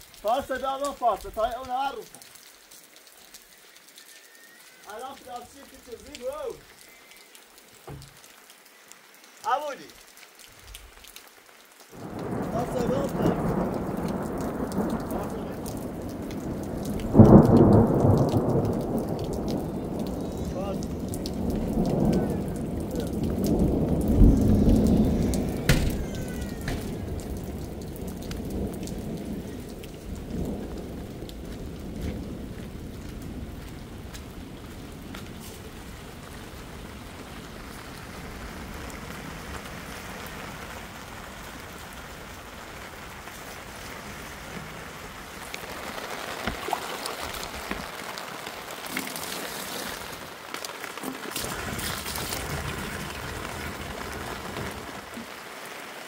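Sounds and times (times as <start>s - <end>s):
rain on plastic sheeting: 0.0s - 56.0s
water splashing into plastic can: 46.3s - 53.5s.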